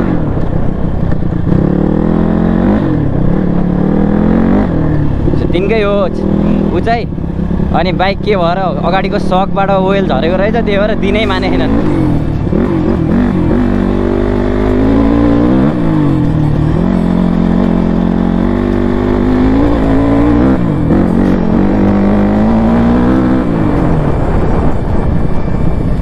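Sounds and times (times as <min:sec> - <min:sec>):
dirt bike engine: 0:00.0 - 0:26.0.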